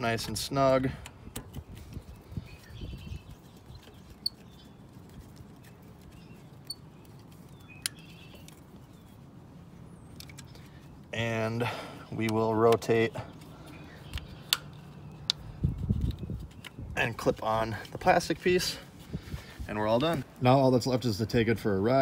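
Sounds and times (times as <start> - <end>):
soft rustling and handling: 0.0 - 11.2, 12.2 - 21.1
birds chirping faintly: 0.0 - 22.0
light tool clicks: 14.1 - 15.4.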